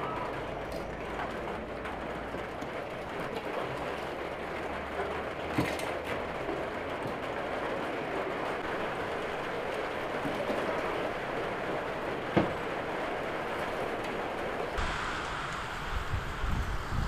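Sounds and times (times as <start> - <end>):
steady rushing noise: 14.6 - 17.0.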